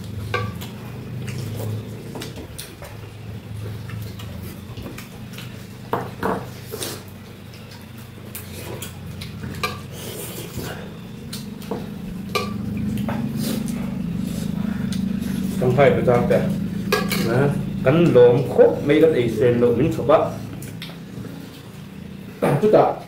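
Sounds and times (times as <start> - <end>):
utensils clinking on dishes: 3.8 - 13.8, 15.6 - 19.1
low hum: 7.2 - 22.5.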